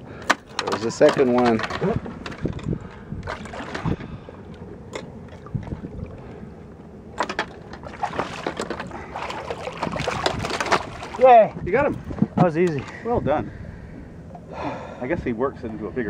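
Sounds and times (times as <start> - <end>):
water splashing against boat: 0.0 - 15.8
knocks and clicks of gear: 0.2 - 3.9, 7.2 - 8.9.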